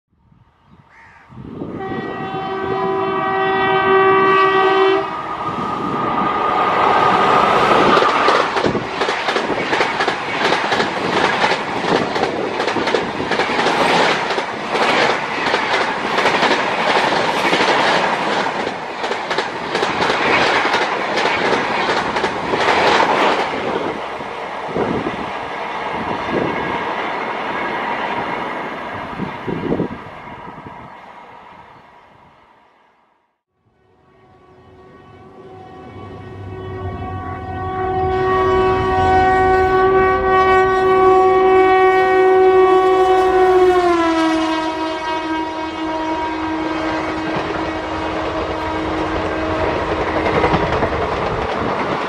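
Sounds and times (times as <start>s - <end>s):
train horn: 1.4s - 8.8s, 33.6s - 50.9s
train wheels clattering over rail joints: 7.8s - 23.6s, 49.8s - 52.0s.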